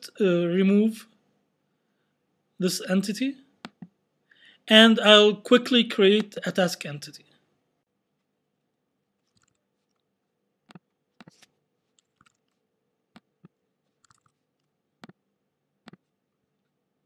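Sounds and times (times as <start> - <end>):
keyboard and mouse clicks: 3.6 - 3.9, 9.2 - 10.0, 10.7 - 15.2, 15.8 - 16.1.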